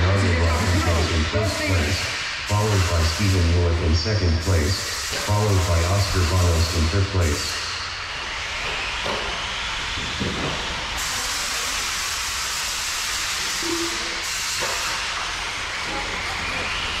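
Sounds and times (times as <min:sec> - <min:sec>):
rc truck tyres hissing: 0:04.4 - 0:09.8, 0:10.6 - 0:17.0.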